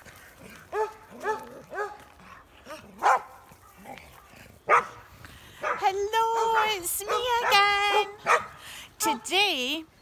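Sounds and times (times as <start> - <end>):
dogs yipping: 0.6 - 5.0, 5.6 - 8.6
dogs barking: 0.6 - 8.6.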